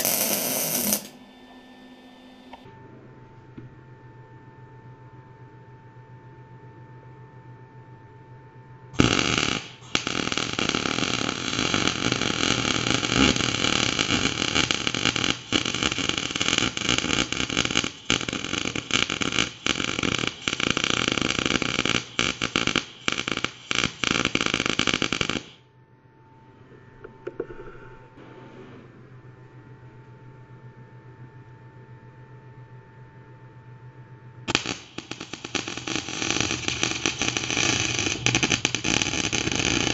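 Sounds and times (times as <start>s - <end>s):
arc welding crackling: 0.0s - 1.2s, 9.0s - 25.6s, 34.5s - 39.9s.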